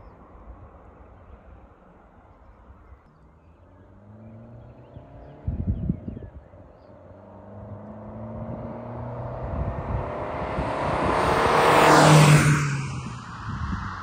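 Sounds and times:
diesel car driving past: 3.1s - 14.0s.

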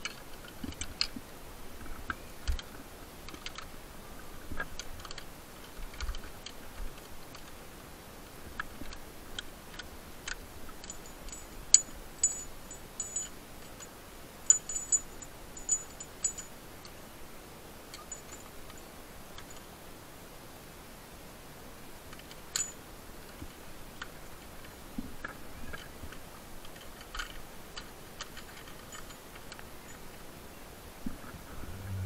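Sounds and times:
metal hardware clinking: 10.8s - 13.9s, 14.5s - 16.5s, 26.6s - 30.0s.

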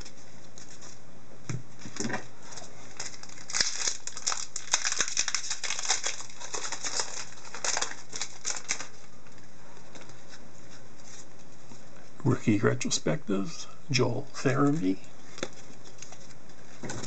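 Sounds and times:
plastic wrapper crinkling and tearing: 2.5s - 10.4s.

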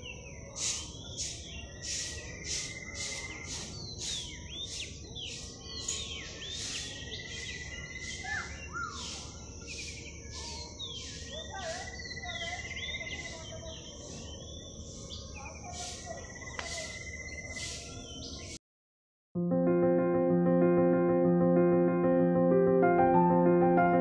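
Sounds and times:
birds chirping and singing: 0.0s - 18.6s.

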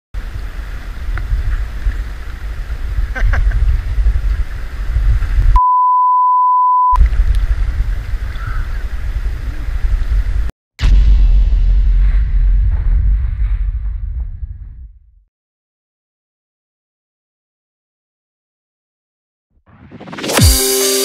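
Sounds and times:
wind buffeting microphone: 0.2s - 5.6s, 7.0s - 10.5s
electronic bleep: 5.6s - 7.0s.

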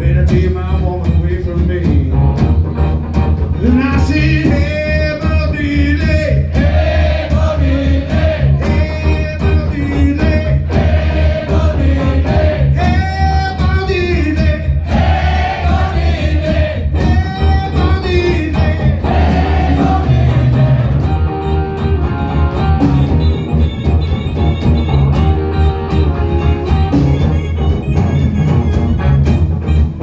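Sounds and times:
live rock band: 0.0s - 30.0s
crowd singing along: 6.4s - 9.2s, 10.1s - 13.0s, 14.7s - 17.2s, 18.1s - 21.4s.

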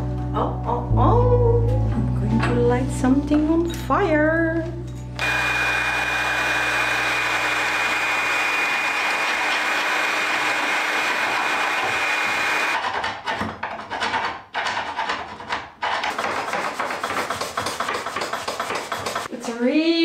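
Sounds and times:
heat gun blowing with whine: 5.2s - 12.8s
scraper scraping painted wood: 11.3s - 19.5s.

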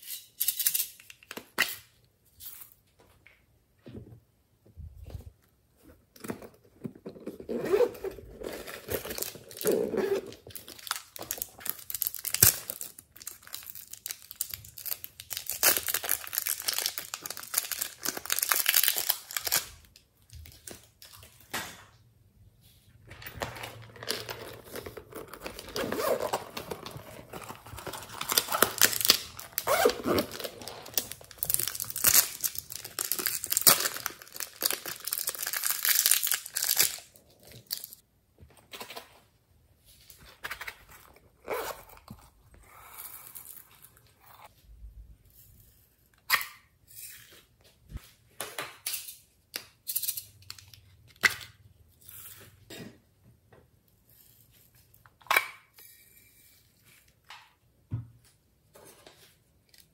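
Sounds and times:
plastic wrapper crinkling: 8.8s - 21.2s, 23.6s - 38.0s.

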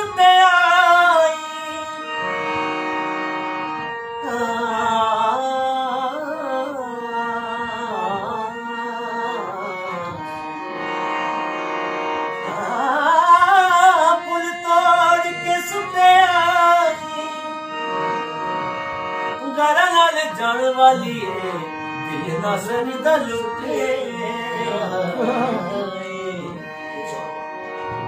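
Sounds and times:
harmonium held notes: 0.0s - 28.0s
person singing wordless phrases: 4.2s - 10.3s, 12.4s - 17.6s, 19.4s - 27.6s.

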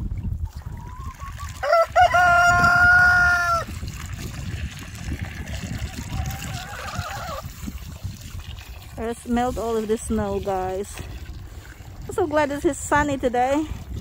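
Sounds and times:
water pouring into a tub: 0.3s - 14.0s
rooster crowing: 1.6s - 3.7s
chicken call: 6.1s - 7.4s.

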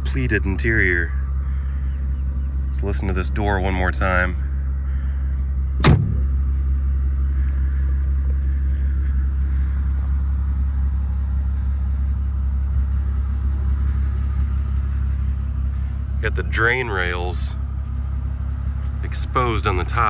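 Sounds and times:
car engine idling: 0.0s - 20.0s
car door slamming: 5.8s - 6.4s.

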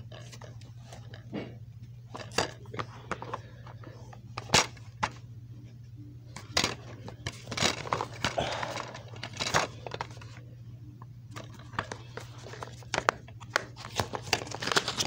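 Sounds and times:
steady low hum: 0.0s - 15.0s
plastic cases clicking and clacking: 6.4s - 10.4s, 11.3s - 15.0s.

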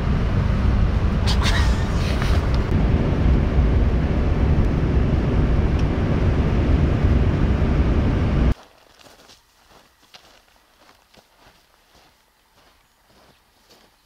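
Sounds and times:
vehicle road and wind noise: 0.0s - 8.6s
faint outdoor sound: 0.0s - 14.0s.

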